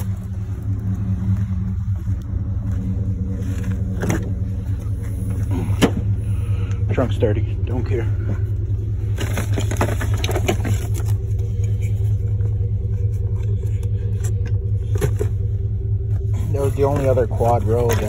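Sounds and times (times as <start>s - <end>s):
vehicle engine idling: 0.0s - 18.0s
scrapes and knocks of handled objects: 8.3s - 18.0s.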